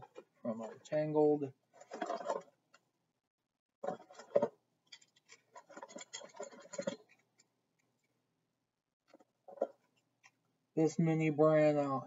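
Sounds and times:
plastic toys clicking and rattling: 1.7 - 2.6, 3.8 - 8.1.

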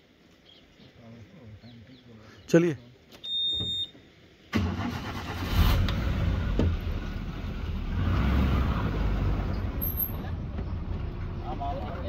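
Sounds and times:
road rumble: 0.0 - 12.0
vehicle engine running: 5.8 - 12.0.

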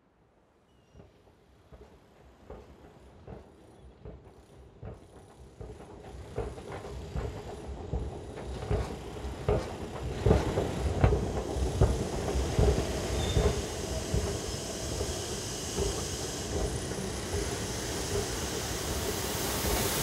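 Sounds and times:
rumble with irregular knocks: 1.7 - 14.4
high whistle: 13.1 - 13.7.

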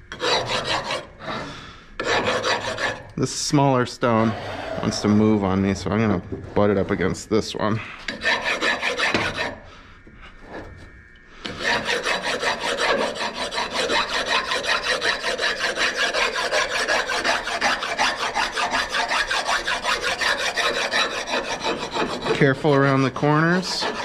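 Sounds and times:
rasp scraping stone: 0.1 - 3.1, 8.1 - 9.6, 11.4 - 24.0.

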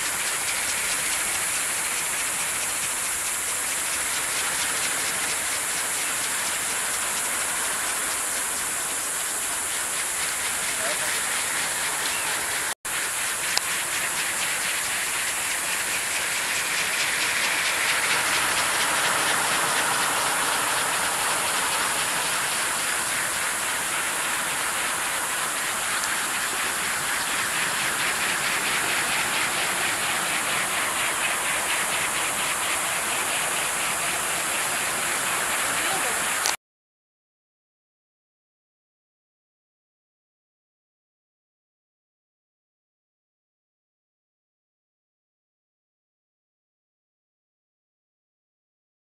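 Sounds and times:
wind turbines spinning: 0.0 - 36.6.

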